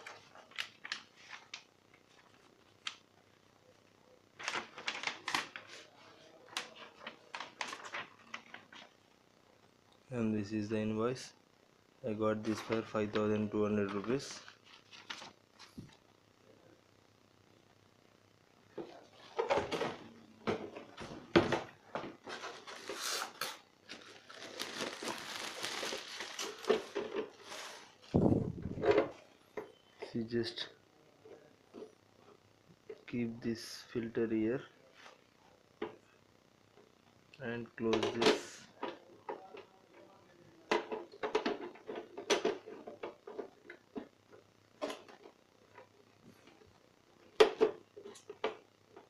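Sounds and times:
plastic wrapping crinkling: 22.5 - 28.1.

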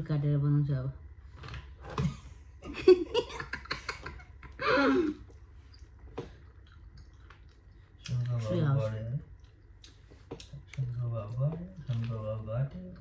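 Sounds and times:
person laughing: 2.6 - 5.3.

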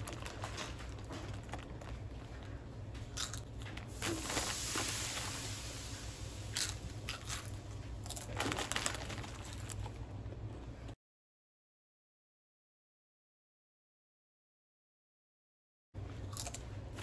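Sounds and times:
foil bag crinkling: 0.0 - 2.6, 3.2 - 10.0
chips crunching: 0.0 - 10.2, 16.2 - 17.0.

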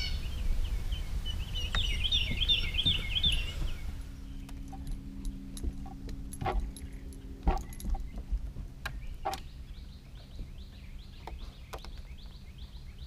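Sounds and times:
small bird chirping: 0.0 - 6.0, 6.6 - 13.0
steady low hum: 0.0 - 13.0
knocks and clicks on boat deck: 1.8 - 3.4, 4.5 - 9.6, 10.2 - 12.4.

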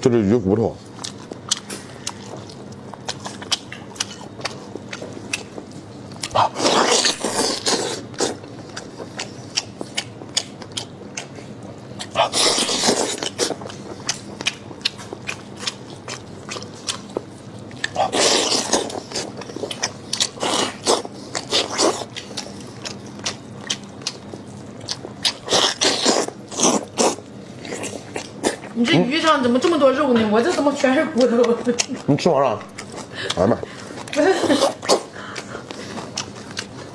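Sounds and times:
chewing clicks: 0.9 - 28.8.

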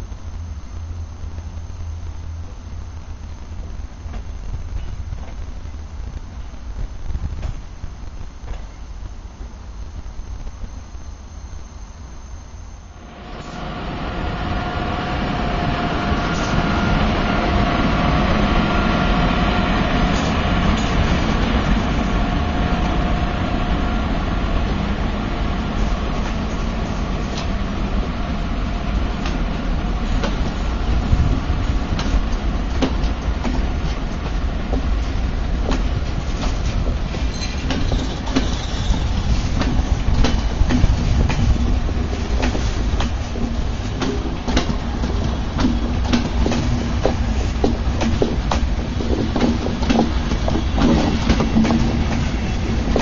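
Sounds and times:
thin locomotive whine: 0.0 - 53.0
train rolling rumble: 0.0 - 53.0
wheels clicking over rail joints: 31.2 - 53.0.

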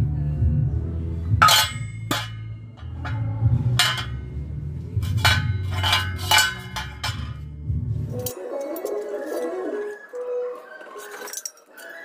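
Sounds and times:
background music: 0.0 - 12.0
metallic clinks and knocks: 1.4 - 4.4, 5.0 - 7.5, 8.1 - 9.5, 11.0 - 12.0.

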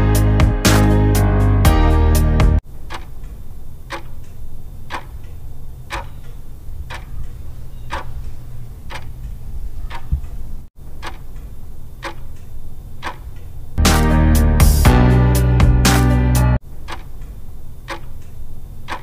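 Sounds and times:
clock ticking: 2.8 - 13.5, 16.8 - 19.0.

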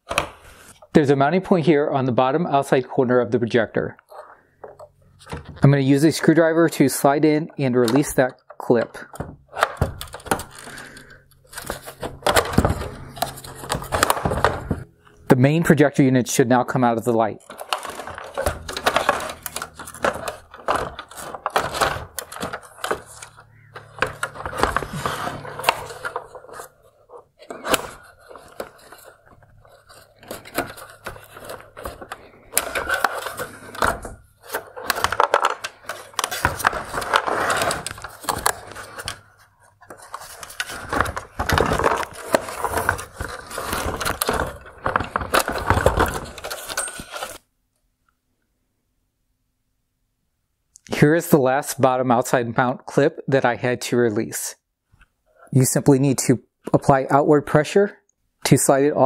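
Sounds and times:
plastic parts scraping and clicking: 0.0 - 1.0, 4.0 - 15.3, 17.2 - 47.5.

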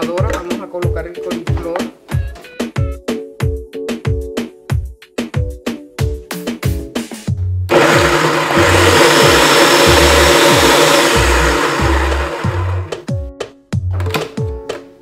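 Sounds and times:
background music with drum beat: 0.0 - 7.7, 9.2 - 15.0
food processor chopping: 7.7 - 13.1.

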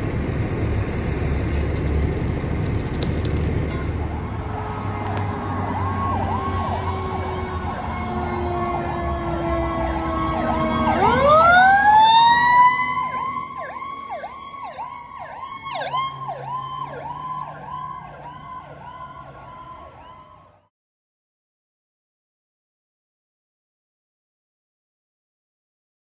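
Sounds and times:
low engine rumble: 0.0 - 8.1
fire truck sirens wailing: 0.0 - 20.7.

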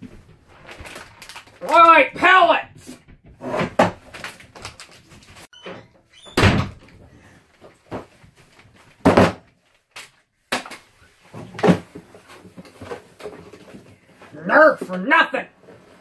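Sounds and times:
loud bangs of box: 9.0 - 9.4.

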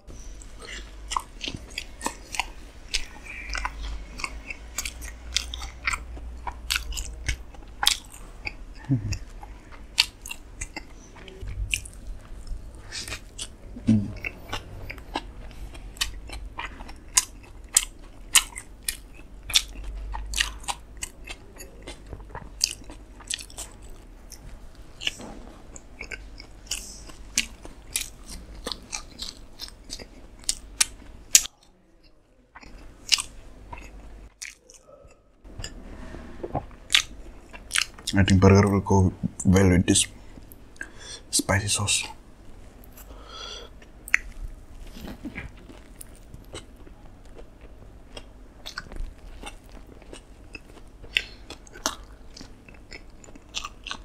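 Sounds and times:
mouth clicks and crunches: 0.4 - 35.8, 36.5 - 42.1, 42.8 - 54.0
sandwich bites and chewing: 42.8 - 54.0.

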